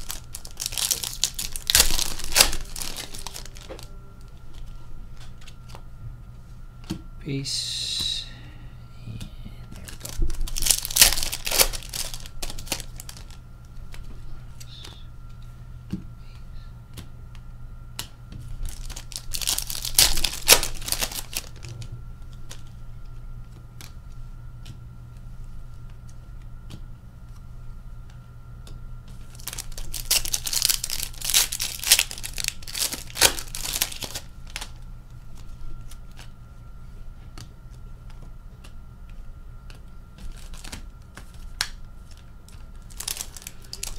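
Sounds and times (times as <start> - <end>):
card pack wrappers crinkling: 0.0 - 5.8, 9.8 - 14.0, 18.5 - 22.7, 29.2 - 36.3, 40.2 - 43.9.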